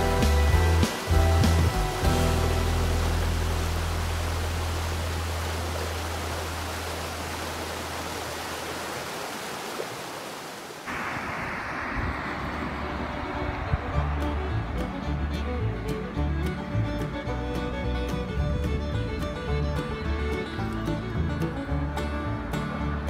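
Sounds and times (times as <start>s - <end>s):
river rushing over rocks: 0.0s - 16.2s
outdoor hiss: 0.0s - 16.9s.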